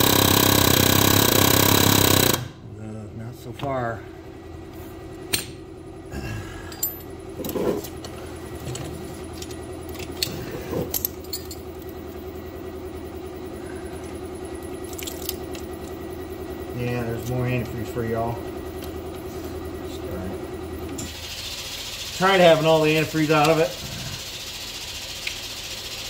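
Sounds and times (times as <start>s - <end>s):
motor hum: 0.0s - 26.0s
metallic clinks and knocks: 9.4s - 11.9s.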